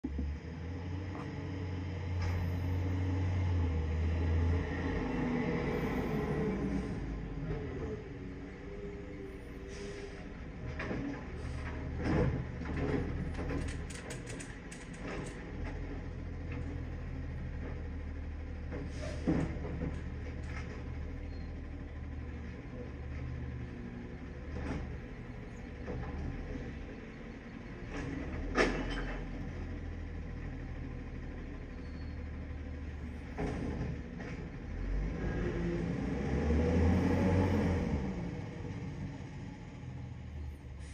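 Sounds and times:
garbage truck engine rumble: 0.0s - 40.9s
truck arm clanking and knocking: 10.6s - 16.9s, 27.8s - 29.6s.

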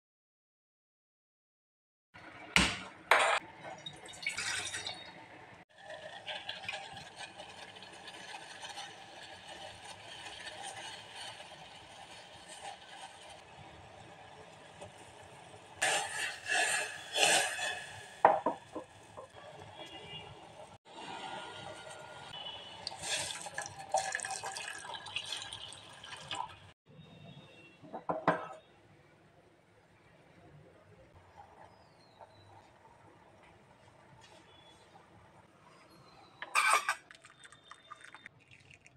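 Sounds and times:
milk pouring into tea: 22.8s - 26.6s, 37.1s - 38.9s
tea bubbling: 22.8s - 26.6s, 36.9s - 38.9s.

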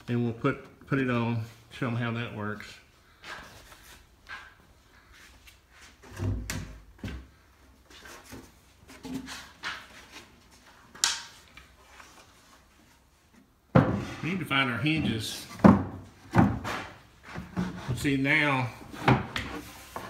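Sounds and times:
wooden boards knocking: 15.6s - 16.9s.

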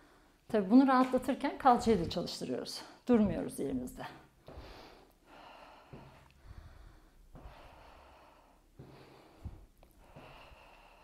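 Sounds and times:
woman breathing hard: 4.4s - 11.0s.

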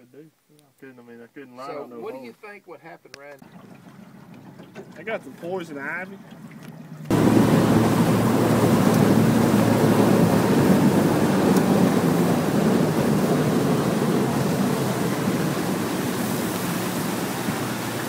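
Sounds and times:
boat motor running: 3.4s - 18.0s
wind on microphone: 7.1s - 18.0s.

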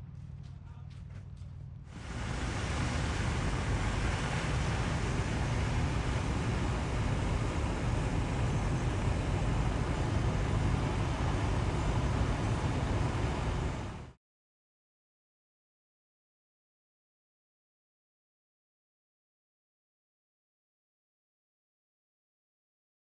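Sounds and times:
car road and wind noise: 1.9s - 14.2s.

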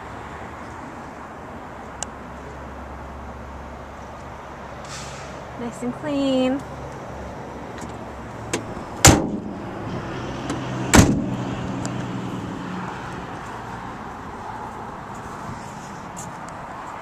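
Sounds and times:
van doors slamming shut: 8.5s - 9.7s, 10.4s - 11.5s.

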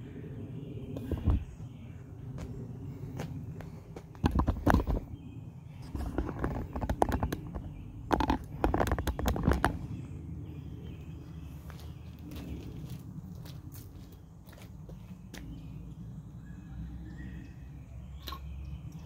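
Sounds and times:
footsteps on concrete: 2.3s - 4.2s, 11.6s - 15.5s.

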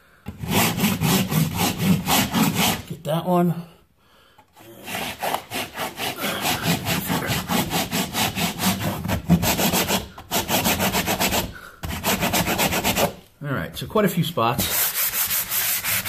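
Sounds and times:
sanding block scrubbing wall: 0.3s - 3.0s, 4.8s - 13.2s, 14.6s - 16.0s.

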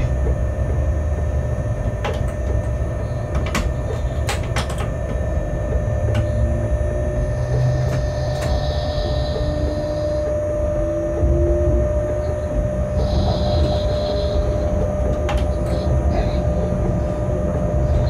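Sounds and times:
sharp clicks and knocks: 0.0s - 6.4s
locomotive cab rumble: 0.0s - 18.0s.

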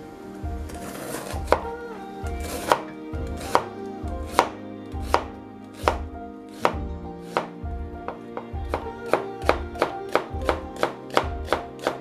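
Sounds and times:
knife slicing onion on cutting board: 2.5s - 7.6s, 8.7s - 12.0s.

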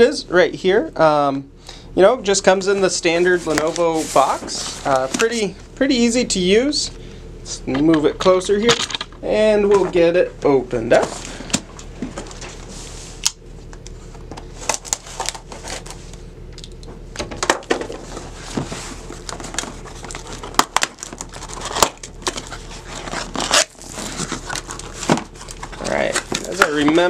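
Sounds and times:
cardboard box scraping and crinkling: 3.1s - 5.5s, 18.0s - 27.0s
cardboard tab tearing: 19.1s - 27.0s.

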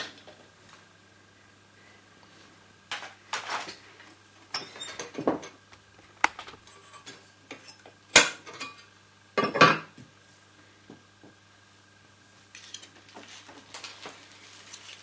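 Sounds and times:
projector parts clicking and clattering: 2.9s - 5.6s, 12.5s - 15.0s.

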